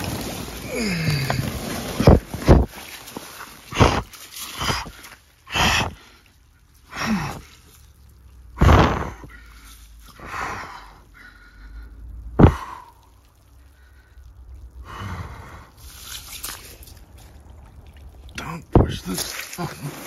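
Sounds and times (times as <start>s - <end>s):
person breathing hard: 3.7s - 6.3s, 6.9s - 7.7s, 8.6s - 15.8s.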